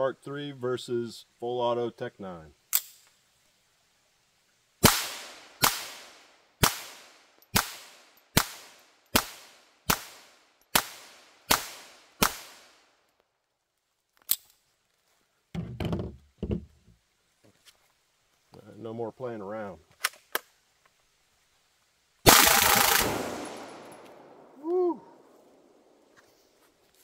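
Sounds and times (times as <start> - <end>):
pistol shots echoing: 4.8 - 12.8, 22.3 - 24.4.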